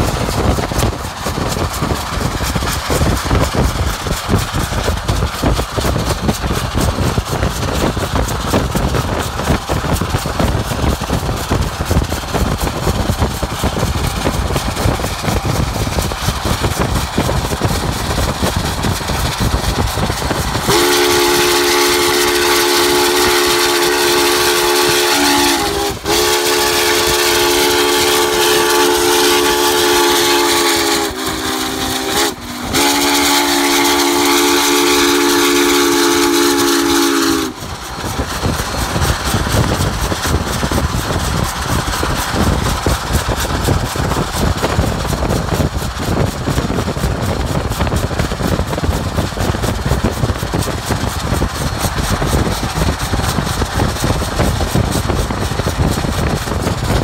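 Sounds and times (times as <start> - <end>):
road and wind noise rumble: 0.0 - 22.5, 37.5 - 57.0
steam whistle blasts: 20.6 - 37.7.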